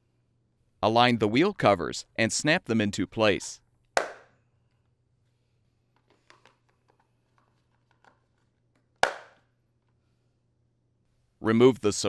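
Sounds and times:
clicks and rubbing of handling: 5.9 - 9.0.

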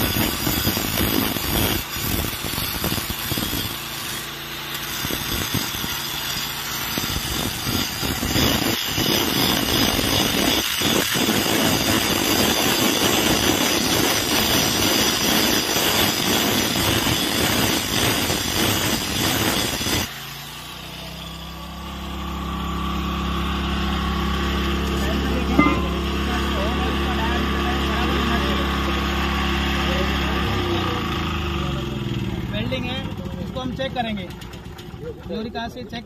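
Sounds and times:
angle grinder grinding steel: 0.0 - 34.2.

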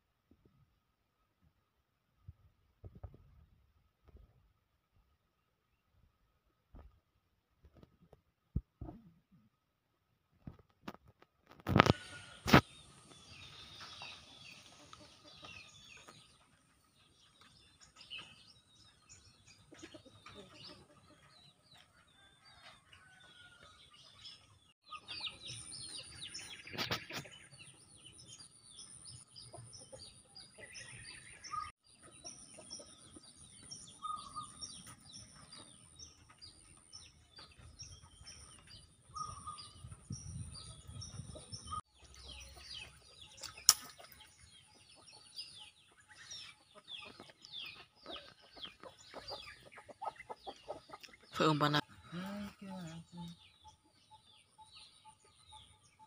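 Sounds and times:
chickens clucking: 11.5 - 28.0, 29.2 - 40.0, 40.8 - 52.6
birds chirping: 11.6 - 56.0
sharp click: 43.4 - 44.1.

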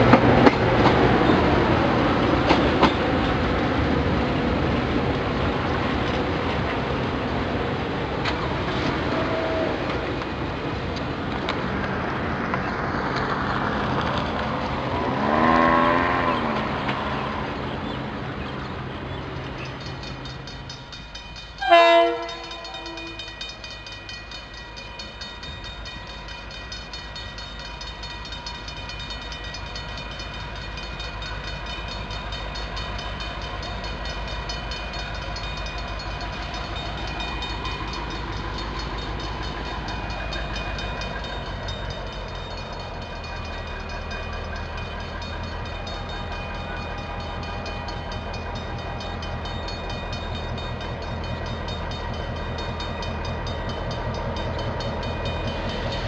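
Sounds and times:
diesel locomotive engine rumble: 0.0 - 56.0
train horn blast: 8.8 - 10.1, 15.0 - 17.4, 21.6 - 23.3.

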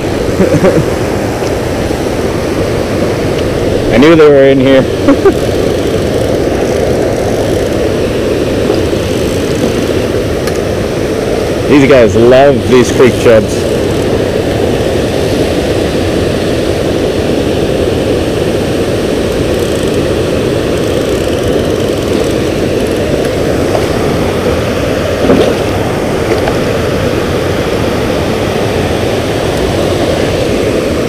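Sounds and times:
water rushing over a spillway: 0.0 - 31.0.

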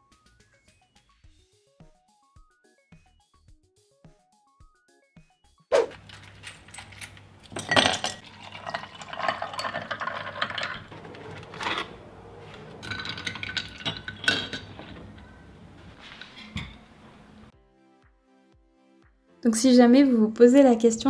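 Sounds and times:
dishes and glass clinking: 5.8 - 17.5
juice pouring into a glass: 7.4 - 14.8.

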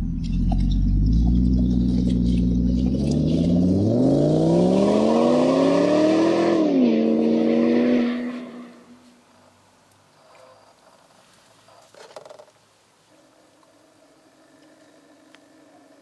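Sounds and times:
engine revving: 0.0 - 8.9.

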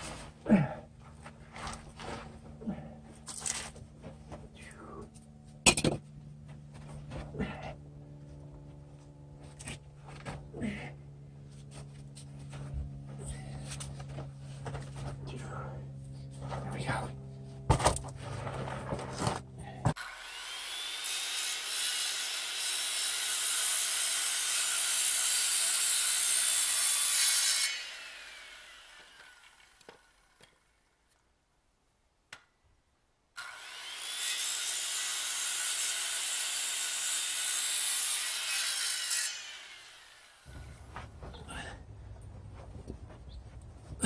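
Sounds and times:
circular saw cutting wood: 18.3 - 30.8, 33.4 - 40.9.

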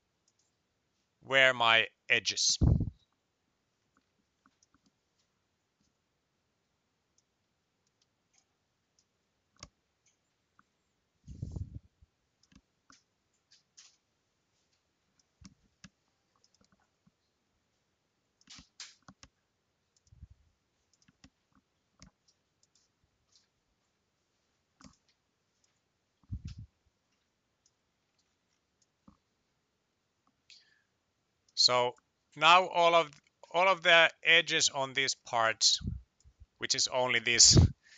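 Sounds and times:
computer mouse clicks: 0.2 - 0.5, 12.4 - 14.0, 15.2 - 16.9, 18.4 - 20.2, 20.9 - 23.5, 24.8 - 25.8
soft low thumps: 2.6 - 2.9.

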